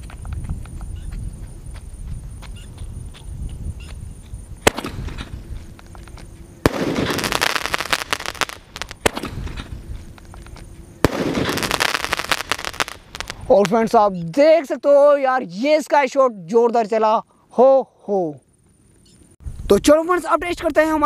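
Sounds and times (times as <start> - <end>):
firework bang and crackling: 4.6 - 13.8.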